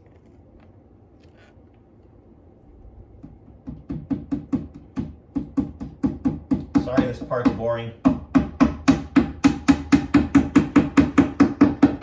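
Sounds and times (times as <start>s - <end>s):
hammer tapping: 3.2s - 12.0s.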